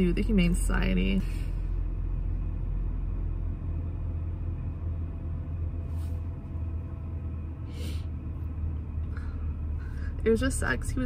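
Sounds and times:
car engine idling: 0.0 - 11.0
person sniffing: 7.7 - 8.1.

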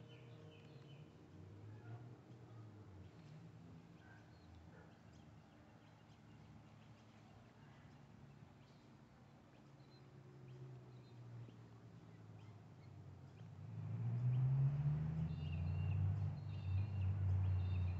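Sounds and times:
small birds chirping: 4.0 - 13.6, 15.2 - 17.9.

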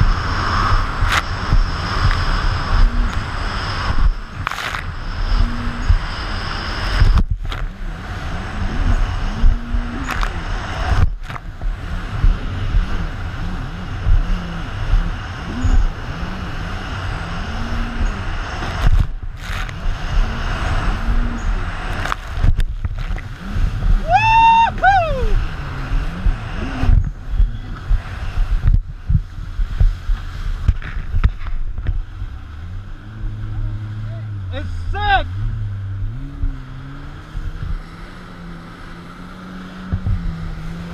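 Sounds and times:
high whine: 0.0 - 40.9
watercraft engine running hard: 0.0 - 40.9
wind and spray noise: 0.0 - 40.9.

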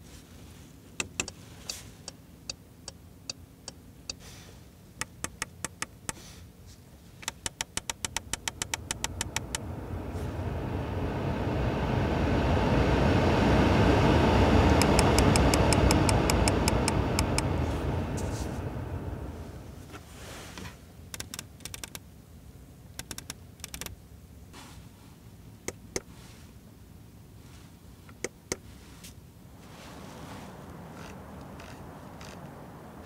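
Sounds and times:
ventilation fan air rush: 0.0 - 33.0
thumbwheel detent clicks: 23.0 - 23.9.

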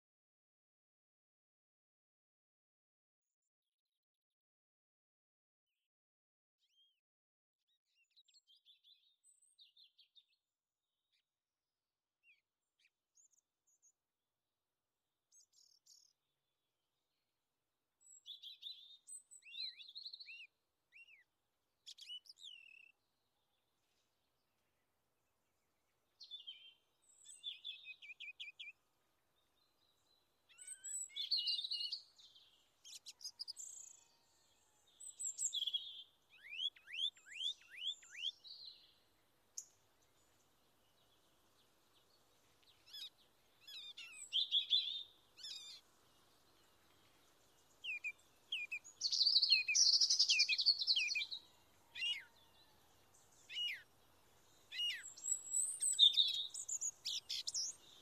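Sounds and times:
songbirds chirping and trilling: 7.7 - 11.3, 15.3 - 17.3, 17.9 - 58.0.

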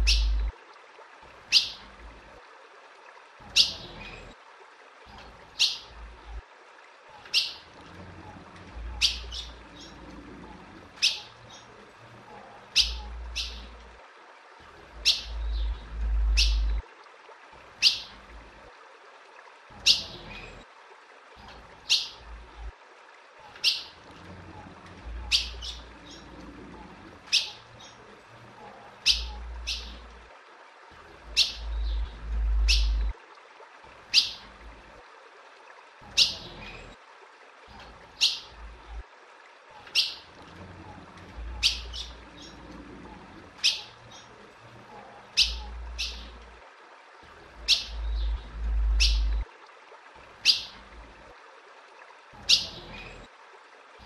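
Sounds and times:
low rumbles: 14.9 - 16.8, 31.2 - 33.1, 47.5 - 49.4.

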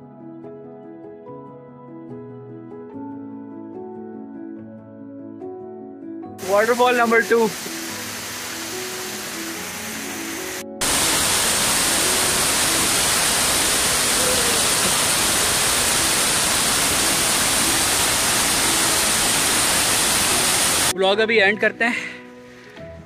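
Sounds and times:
waterfall pouring onto rocks: 6.4 - 20.9.

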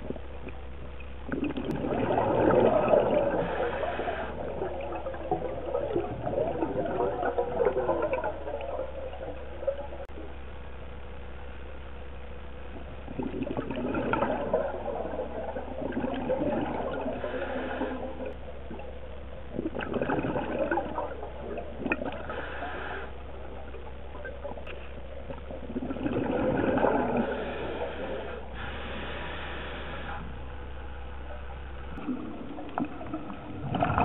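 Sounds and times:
steady low hum: 0.0 - 34.0
bubbling exhalations: 1.3 - 10.1, 13.1 - 18.9, 19.5 - 23.2, 25.6 - 30.2, 32.0 - 34.0
hissing regulator inhalations: 3.2 - 4.5, 17.2 - 18.4, 22.2 - 23.2, 27.1 - 30.4.

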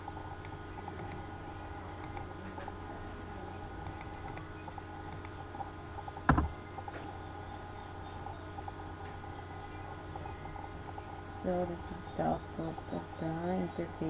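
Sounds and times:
steady low hum: 0.0 - 14.0
loud thump: 6.3 - 6.5.

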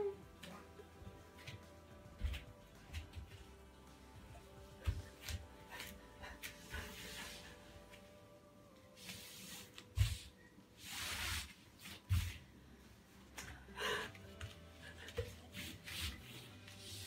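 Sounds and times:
person breathing hard: 13.4 - 15.4.

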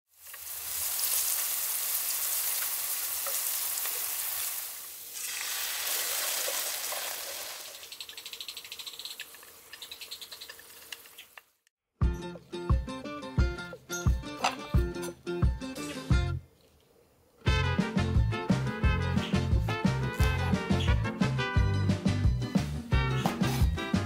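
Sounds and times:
sauce sizzling in hot pan: 0.1 - 11.3
mushrooms sizzling in oil: 0.1 - 11.4
music: 12.0 - 16.4, 17.4 - 24.0.

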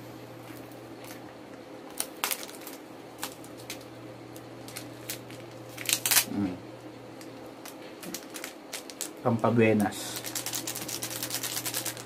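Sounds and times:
plastic wrapping crinkling: 1.9 - 6.4, 7.2 - 12.0.

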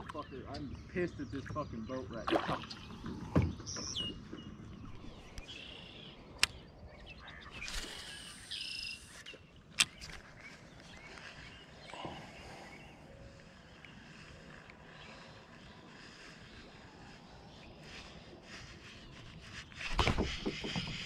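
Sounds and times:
faint bird chirps: 0.0 - 21.0
sharp clicks: 6.3 - 6.7.

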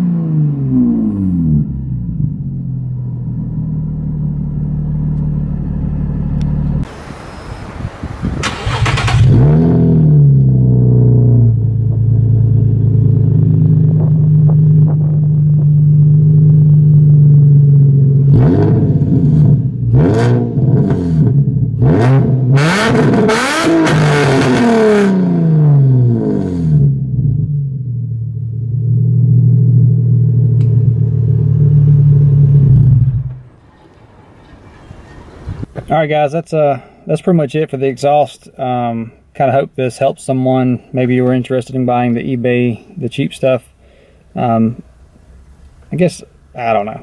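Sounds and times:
car engine idling and revving: 0.0 - 6.9, 8.4 - 34.5.

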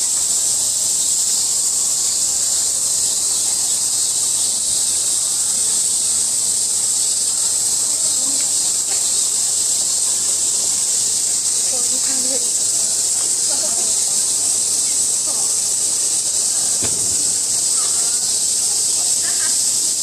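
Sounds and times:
cicadas buzzing: 0.0 - 20.0.

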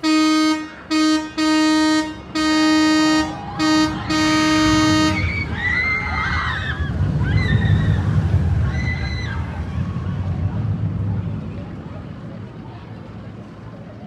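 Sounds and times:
single-toned horn blasts: 0.0 - 5.5.

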